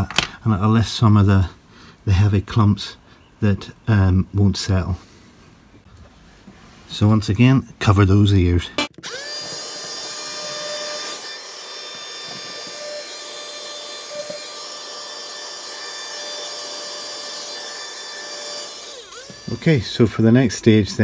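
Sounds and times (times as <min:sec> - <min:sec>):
vacuum cleaner motor whine: 0:09.0 - 0:19.7.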